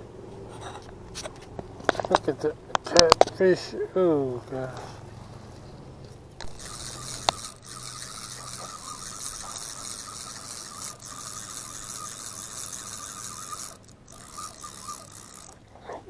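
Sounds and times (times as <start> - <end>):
fishing reel whirring: 6.4 - 16.0.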